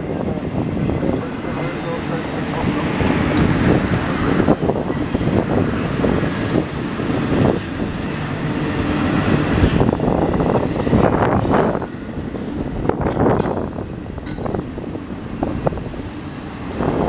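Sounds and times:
steel wheels rumbling on rail: 0.0s - 17.0s
faint high wheel squeal: 0.6s - 2.2s, 9.6s - 12.2s, 15.8s - 17.0s
clacks over rail joints: 12.9s - 14.6s.

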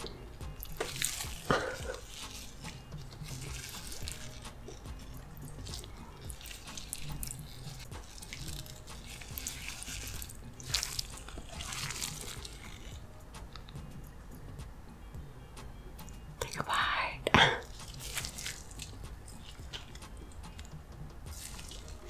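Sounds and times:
wet squelches of thick sauce: 0.2s - 13.0s, 17.5s - 20.7s, 21.3s - 22.0s.

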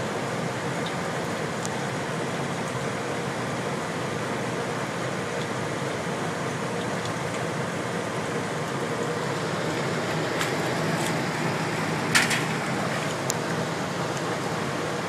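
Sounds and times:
heat pump hiss and hum: 0.0s - 15.0s.

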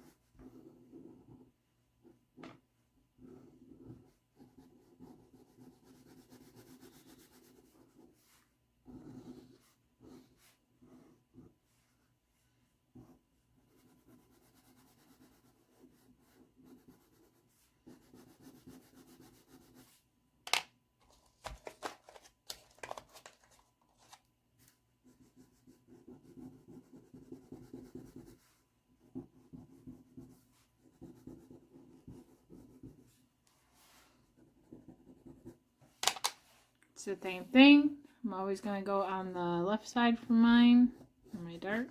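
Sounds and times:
pastel scratching on paper: 3.2s - 20.0s, 25.0s - 35.6s.

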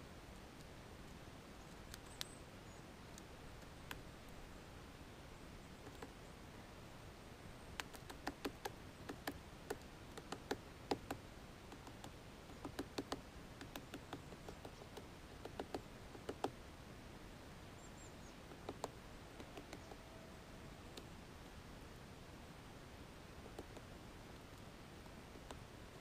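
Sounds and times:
woodpecker knocking on pine cone: 7.8s - 16.6s, 18.5s - 20.0s, 23.4s - 23.9s.

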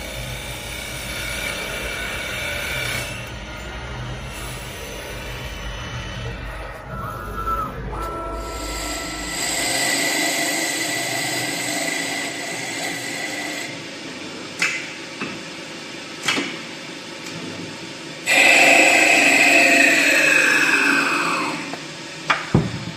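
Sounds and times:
lathe spindle whine: 0.0s - 14.3s, 18.2s - 22.2s
loud cutting: 18.3s - 21.8s.

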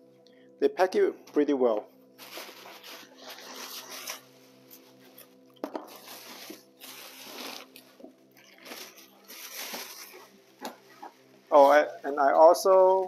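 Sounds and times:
wrapping paper rustling: 2.2s - 12.2s.

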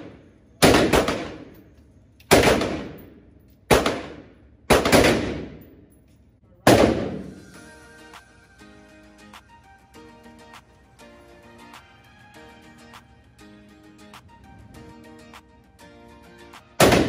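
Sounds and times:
rifle shots echoing: 0.0s - 1.7s, 2.3s - 5.8s, 6.7s - 7.4s, 16.8s - 17.0s
faint music: 5.6s - 17.0s.

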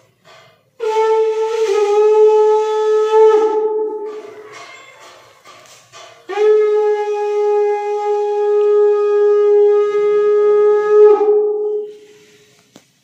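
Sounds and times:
conch shell blown: 0.7s - 4.6s, 6.2s - 12.6s.

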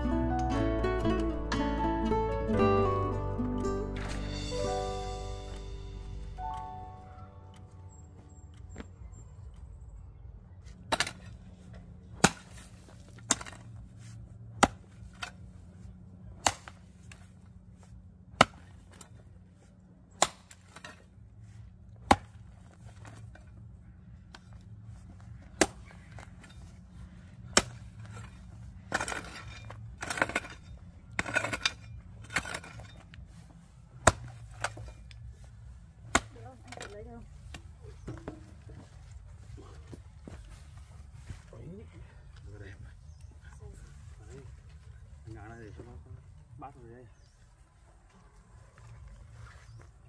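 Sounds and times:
rustling and scraping: 10.6s - 46.4s
blade chopping: 16.4s - 16.9s, 18.4s - 19.1s, 22.0s - 22.4s, 36.0s - 36.9s.

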